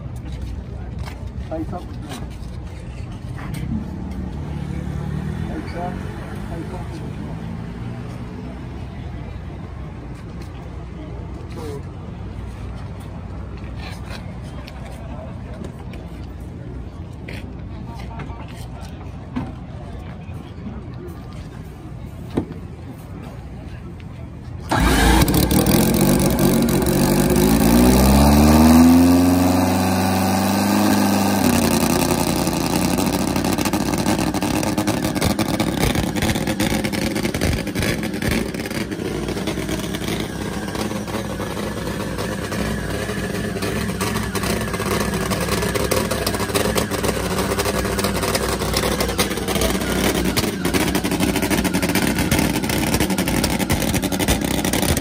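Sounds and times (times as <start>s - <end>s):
motorcycle engine revving and idling: 24.6s - 55.0s.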